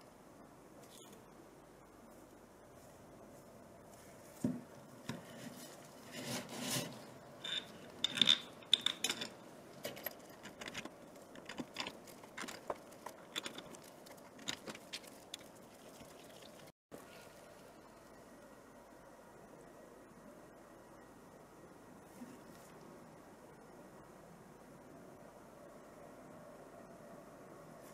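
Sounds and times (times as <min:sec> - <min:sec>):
rubbing and scraping on plastic: 0:04.0 - 0:09.1.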